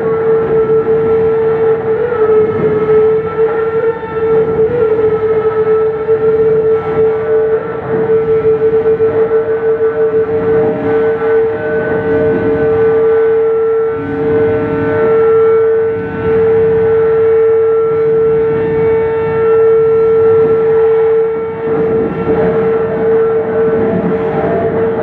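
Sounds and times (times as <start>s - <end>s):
amplified drone: 0.0s - 25.0s.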